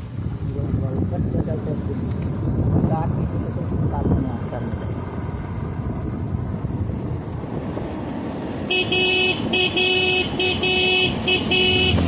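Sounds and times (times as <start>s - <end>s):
vehicle driving rumble: 0.0s - 12.0s
vehicle horn blasts: 8.7s - 12.0s.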